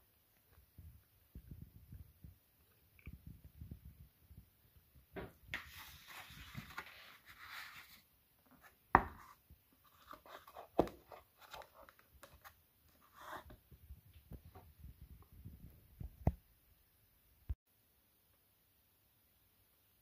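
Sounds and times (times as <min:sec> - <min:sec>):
paper rustling: 0:05.5 - 0:13.6.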